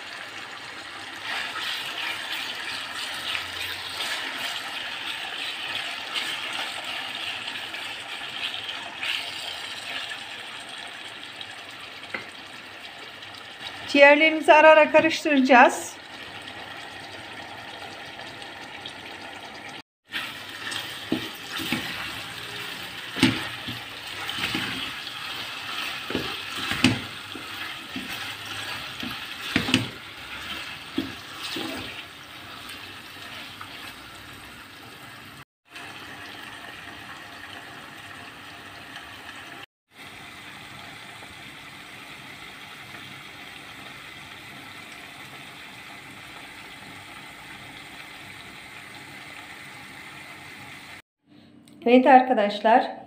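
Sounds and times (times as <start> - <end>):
liver sizzling in oil: 0.0 - 51.0
wooden spatula scraping pot: 1.2 - 10.0, 20.1 - 34.2.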